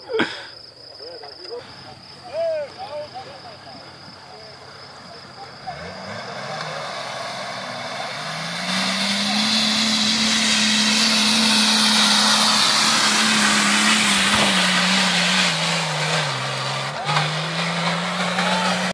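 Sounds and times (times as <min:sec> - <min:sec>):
engine revving hard: 0:05.4 - 0:18.9.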